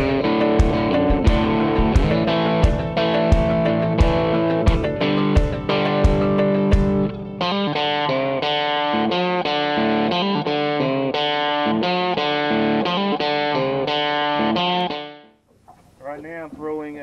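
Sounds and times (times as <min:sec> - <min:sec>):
sharp drum-like hits: 0:00.0 - 0:07.1
guitar background music: 0:00.0 - 0:15.4.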